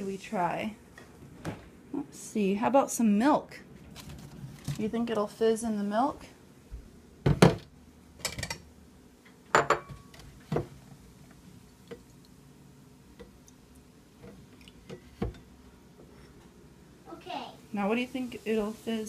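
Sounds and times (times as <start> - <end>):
glass bowl knocking on countertop: 9.5 - 10.0.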